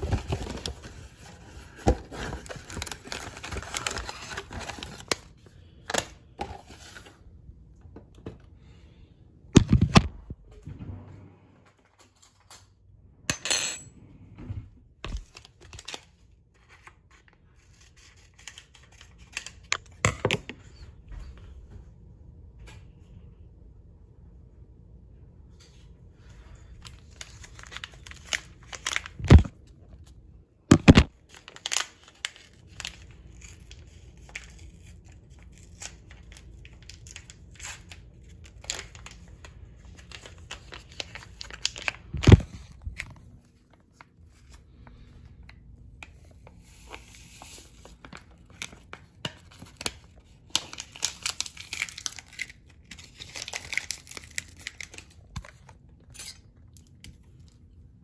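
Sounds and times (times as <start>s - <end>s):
packet crinkling and tearing: 0.0s - 5.3s, 26.8s - 30.0s, 30.7s - 45.0s, 46.7s - 57.5s.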